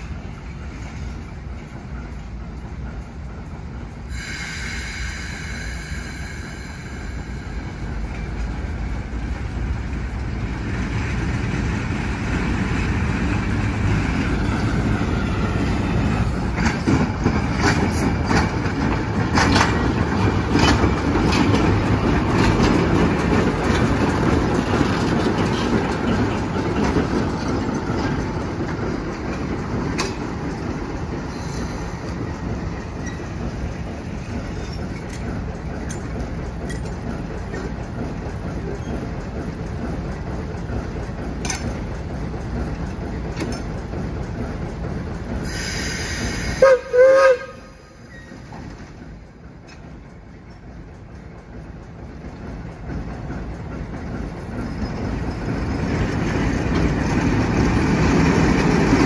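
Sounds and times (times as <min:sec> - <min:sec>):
diesel locomotive rumble: 0:00.0 - 0:59.0
wheels clicking over rail joints: 0:07.6 - 0:46.0, 0:46.6 - 0:59.0
wheel squeal: 0:33.0 - 0:33.4, 0:48.0 - 0:48.6.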